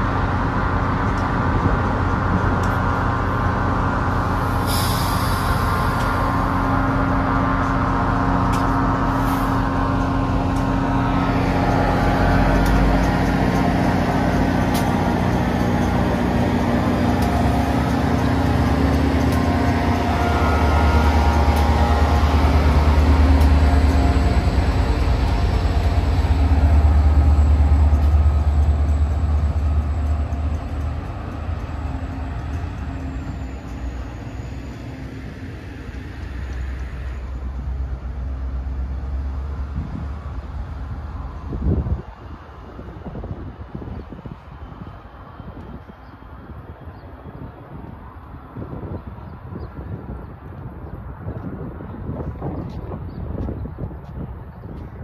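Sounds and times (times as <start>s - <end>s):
diesel engine rumble: 0.0s - 45.6s
steady high whine: 4.0s - 37.5s.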